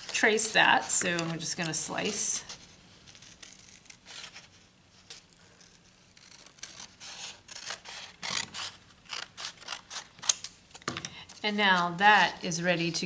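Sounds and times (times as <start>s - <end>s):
scissors cutting paper: 0.0s - 2.3s, 3.1s - 4.5s, 5.1s - 10.5s.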